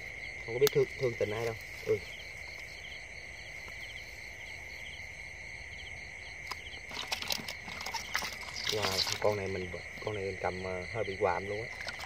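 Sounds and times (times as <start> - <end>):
insects trilling: 0.0 - 12.0
pulsed insect chirps: 0.0 - 12.0
click: 0.6 - 0.8.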